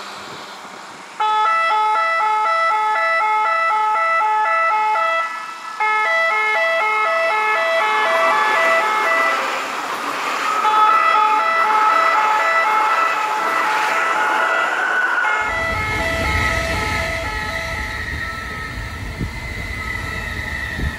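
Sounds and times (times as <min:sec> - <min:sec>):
alternating warning horns: 0:00.0 - 0:20.9
electric train rushing past: 0:00.0 - 0:20.9
low rumble: 0:15.4 - 0:20.9.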